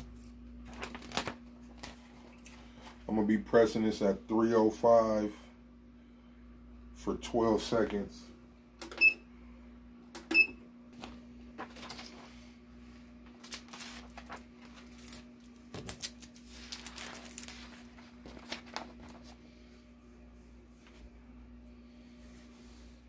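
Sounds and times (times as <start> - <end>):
plastic sheet crinkling: 0.0 - 3.0, 13.2 - 19.4
steady low hum: 0.0 - 23.0.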